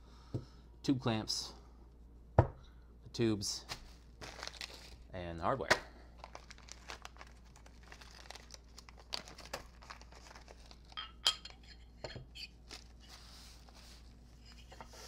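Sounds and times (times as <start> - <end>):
plastic bag crinkling: 4.2 - 5.1, 6.2 - 11.0.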